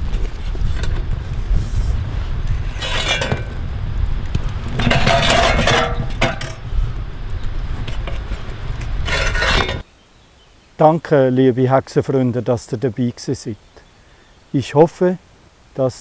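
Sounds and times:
steady low rumble: 0:00.0 - 0:09.8
charcoal chunks clinking: 0:02.6 - 0:03.6, 0:04.7 - 0:06.7, 0:07.8 - 0:09.8.

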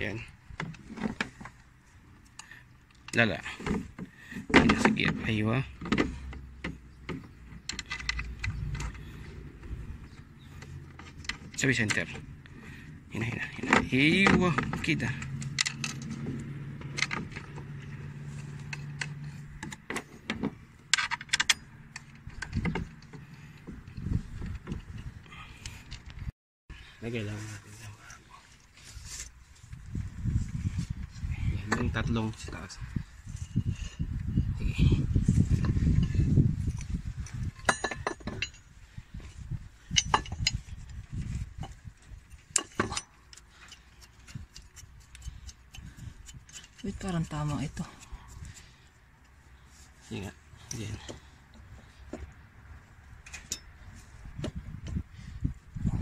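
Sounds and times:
low rubbing and handling noise: 0:06.1 - 0:21.0, 0:27.3 - 0:37.6
metal bolts clinking on metal: 0:20.9 - 0:23.2, 0:37.6 - 0:38.7, 0:39.8 - 0:40.7, 0:41.6 - 0:44.8, 0:53.2 - 0:53.8.

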